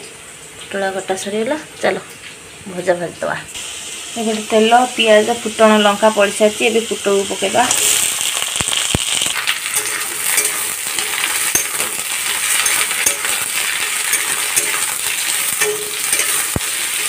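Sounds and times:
vegetables sizzling in hot oil: 0.0 - 17.0
metal spatula scraping a pan: 9.6 - 17.0.

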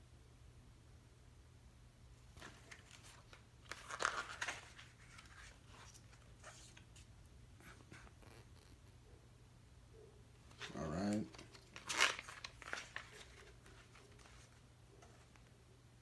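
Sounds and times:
paper pages rustling: 2.3 - 8.8, 10.4 - 15.6.

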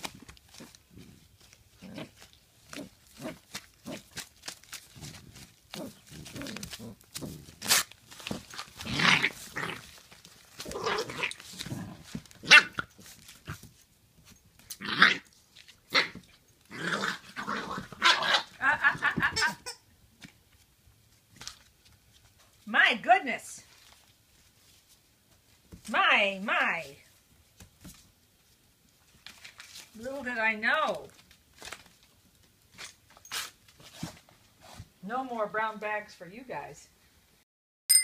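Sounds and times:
puppies growling and barking: 4.9 - 13.7, 14.7 - 19.4
paper bag rustling: 29.1 - 30.0.

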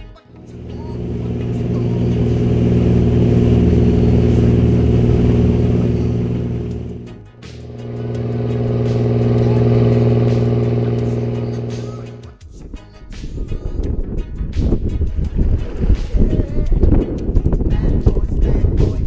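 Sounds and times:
boat engine droning: 0.4 - 12.2
water rushing along hull: 0.7 - 7.0.

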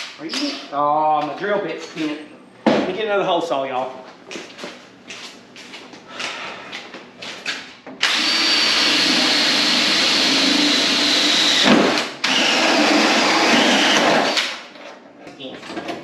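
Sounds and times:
drill hole saw cutting metal: 8.0 - 14.6.

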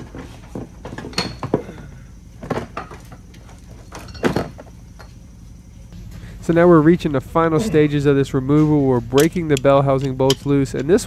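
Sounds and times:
metal clunks and knocks: 0.0 - 1.8, 2.4 - 5.1.

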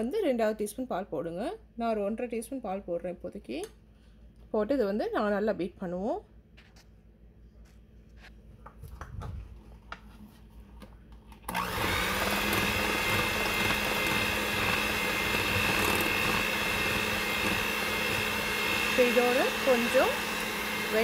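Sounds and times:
electric hand mixer whining: 11.5 - 21.0.

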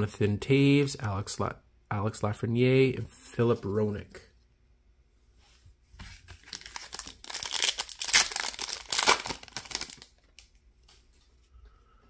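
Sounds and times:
wrapper crinkling: 6.3 - 10.6.

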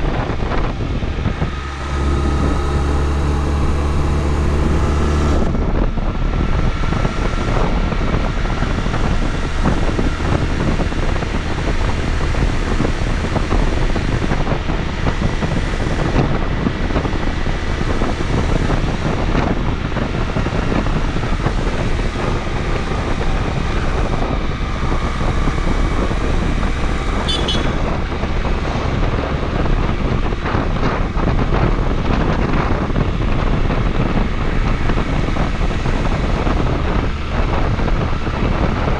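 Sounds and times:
motorcycle engine running: 0.0 - 38.9
wind buffeting microphone: 0.0 - 38.9.

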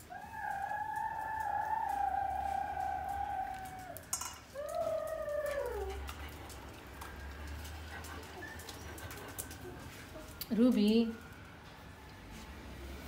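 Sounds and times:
animal whining wails: 0.0 - 6.3.

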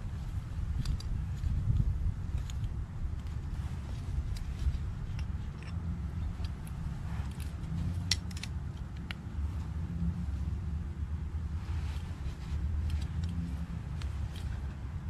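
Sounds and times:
steady low rumble: 0.0 - 15.0
light metallic clicks and taps: 0.8 - 9.4.

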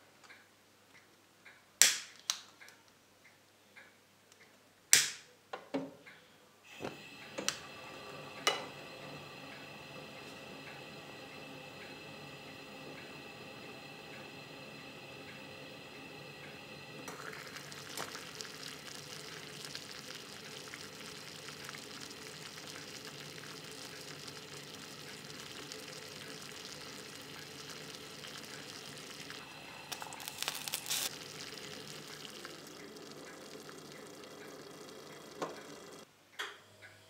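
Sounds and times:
water hissing toward the boil: 6.7 - 36.0
gas burner flame: 6.7 - 36.1.

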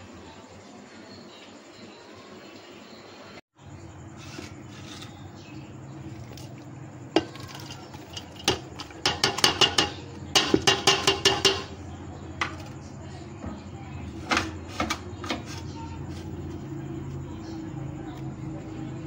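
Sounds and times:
vegetables tipped into metal pot: 6.2 - 11.7
metallic knock on pot: 7.2 - 11.8
ringing taps on pot: 7.2 - 11.8.

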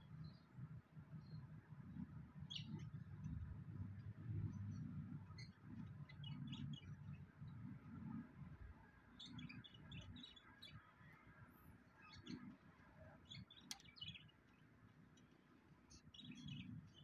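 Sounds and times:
small birds chirping: 0.0 - 17.0
soft low rumble: 1.9 - 8.8.

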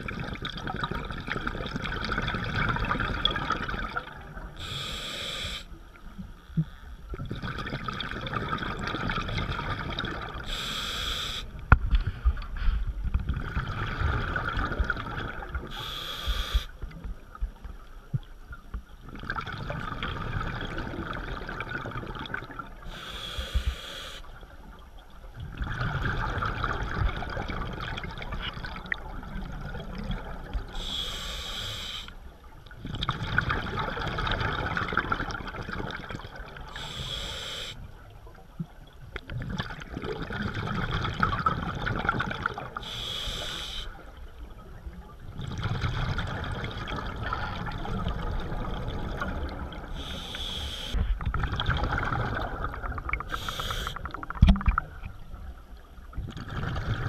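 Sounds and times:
regulator inhalation hiss: 4.6 - 5.8, 10.5 - 11.5, 15.7 - 16.7, 22.9 - 24.3, 30.8 - 32.1, 36.8 - 37.8, 42.8 - 44.0, 50.0 - 51.0, 53.3 - 54.2.

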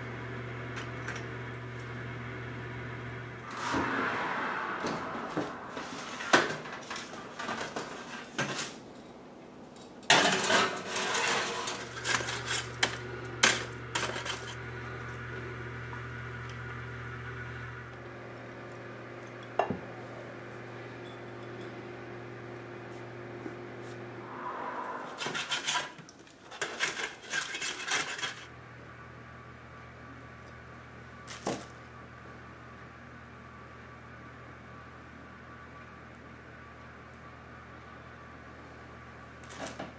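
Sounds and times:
steady low hum: 0.0 - 8.1, 11.2 - 26.3
metal kitchenware clinking: 10.1 - 14.5.

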